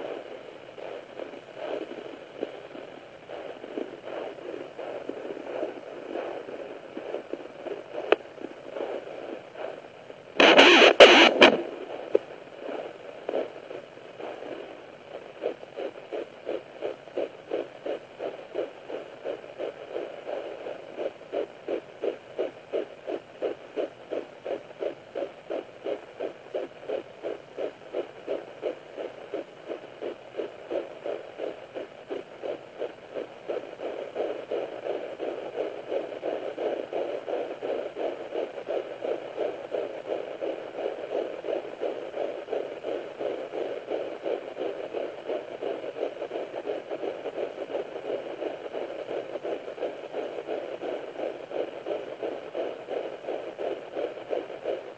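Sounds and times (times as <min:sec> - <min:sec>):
fast fetal heartbeat: 0:00.0 - 0:54.9
loud scratchy burst: 0:10.4 - 0:11.8.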